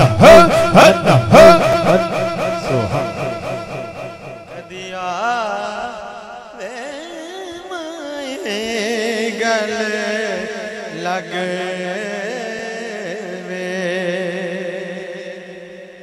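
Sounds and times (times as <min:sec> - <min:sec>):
steady low drone: 0:00.0 - 0:04.9
rhythmic chant: 0:00.0 - 0:16.0.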